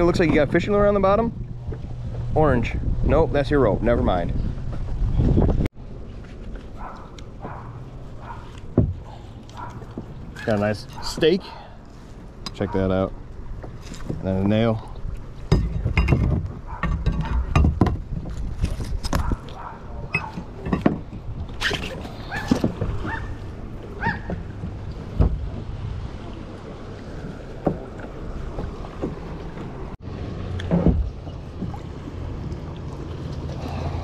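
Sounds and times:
wind on microphone: 0.0s - 5.7s, 15.5s - 26.4s.

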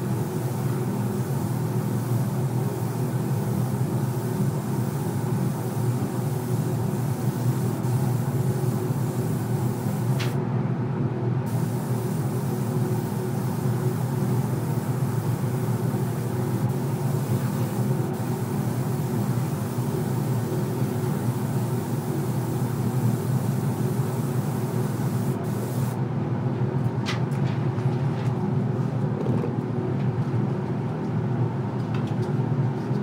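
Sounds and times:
rushing hiss of air: 0.0s - 10.4s, 11.5s - 26.0s.

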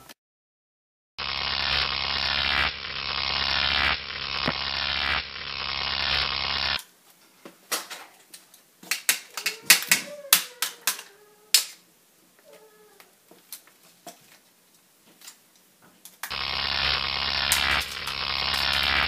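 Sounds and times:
electric arc crackling buzz: 1.2s - 6.8s, 16.2s - 19.0s
electrical hum: 1.2s - 6.8s, 16.3s - 19.0s
hand tool being handled: 7.7s - 11.8s.

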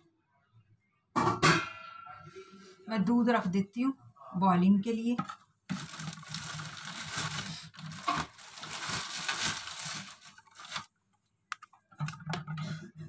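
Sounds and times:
plastic bag rustling: 5.7s - 10.9s.

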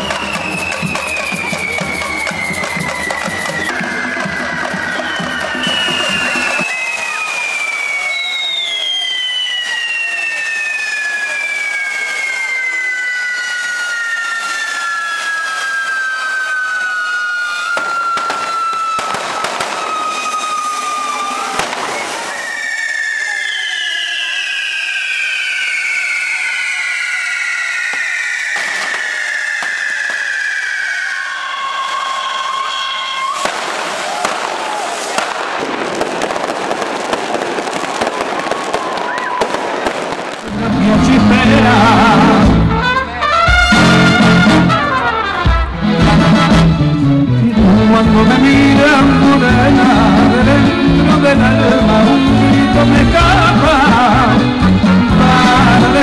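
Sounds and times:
whistling tone sliding down: 0.0s - 35.2s
firecracker bangs: 0.0s - 46.7s.

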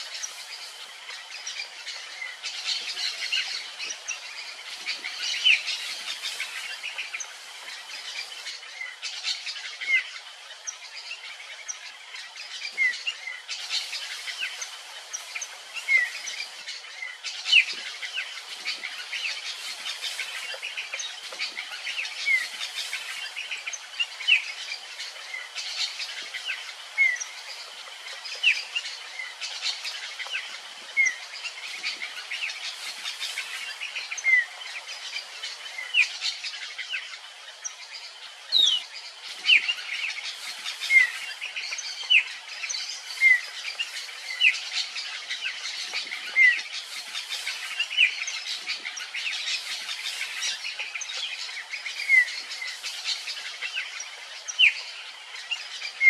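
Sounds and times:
wild birds chirping: 0.0s - 56.0s.

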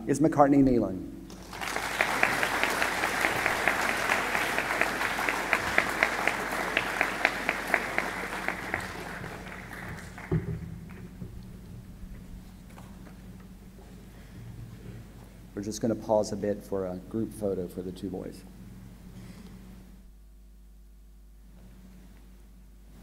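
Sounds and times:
audience applauding: 1.3s - 11.2s
single person clapping steadily: 1.3s - 11.2s.

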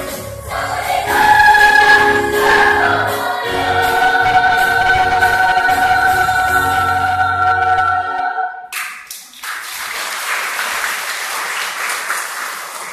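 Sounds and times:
children's choir singing: 0.0s - 8.7s
applause: 8.7s - 12.9s.

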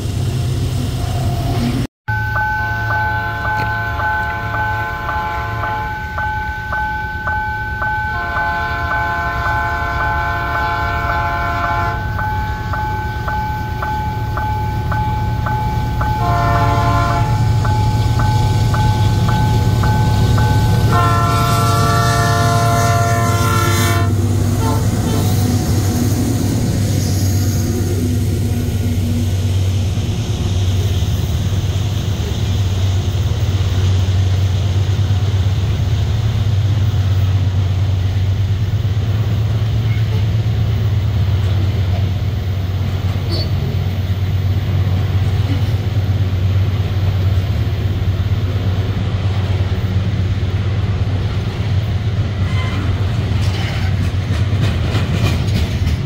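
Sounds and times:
locomotive engine rumble: 0.0s - 56.0s
locomotive bell ringing: 2.1s - 25.8s
locomotive air horn blasts: 2.4s - 6.3s, 7.8s - 12.3s, 16.0s - 17.6s, 20.4s - 25.4s
freight cars rolling and clattering: 52.1s - 56.0s.

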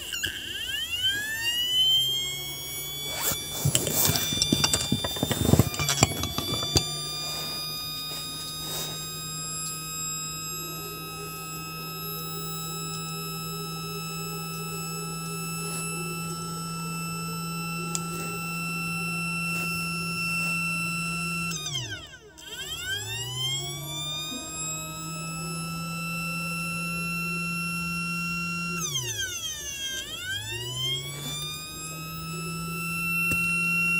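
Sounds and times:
motor whining: 0.0s - 33.9s
clicks and handling knocks: 3.2s - 7.2s.

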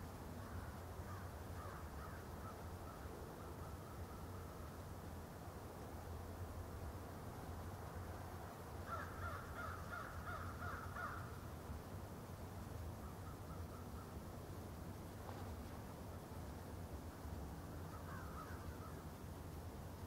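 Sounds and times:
steady low hum: 0.0s - 20.0s
bird calling: 8.9s - 11.4s, 13.0s - 14.2s, 17.9s - 19.0s.

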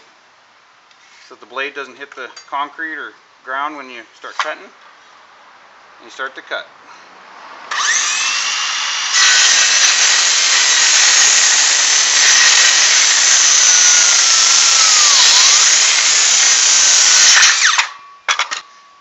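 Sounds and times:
circular saw cutting wood: 7.7s - 18.0s.

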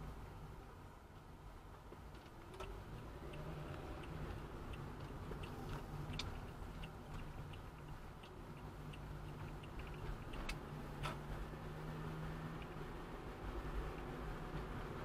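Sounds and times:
car interior low rumble: 0.0s - 15.0s
faint ticking clicks: 1.9s - 11.2s.

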